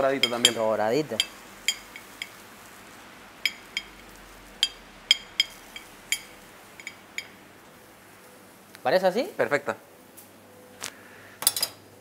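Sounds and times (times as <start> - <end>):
metal spoon clinking on ceramic plate: 0.1 - 2.4, 3.4 - 4.0, 4.6 - 7.4.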